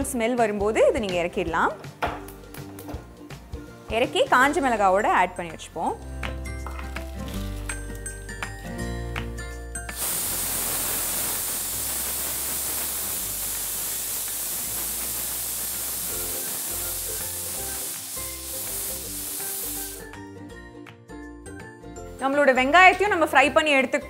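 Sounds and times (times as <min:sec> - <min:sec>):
pressure cooker whistle hissing: 0:10.0 - 0:20.1.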